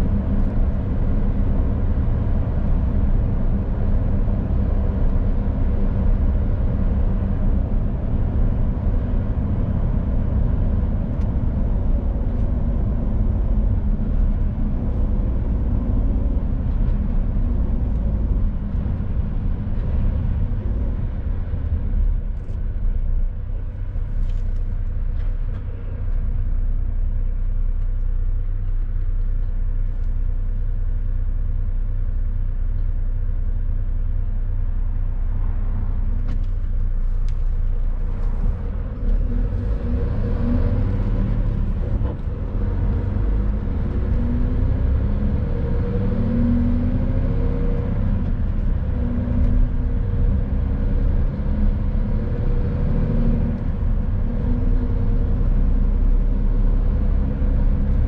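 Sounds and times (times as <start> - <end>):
truck engine and road rumble: 0.0 - 58.0.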